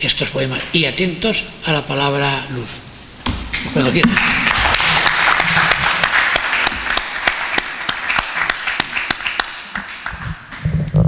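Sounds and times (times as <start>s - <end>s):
audience applause: 3.8s - 10.6s.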